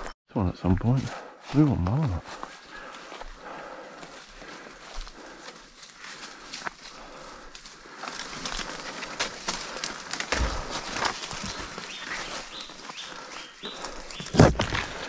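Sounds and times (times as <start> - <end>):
footsteps crunching through dry leaves: 1.5 - 15.0
brushing past undergrowth: 4.1 - 15.0.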